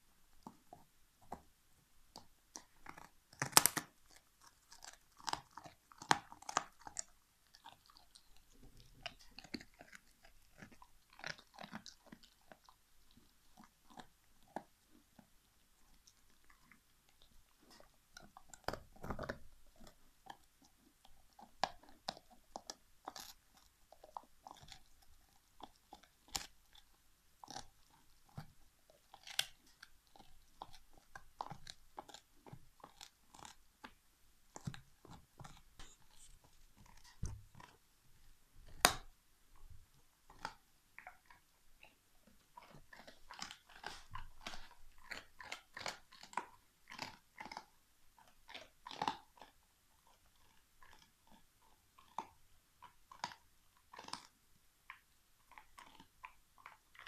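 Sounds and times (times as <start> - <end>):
dog crunching on a bone: 2.1 - 37.8, 38.6 - 57.0.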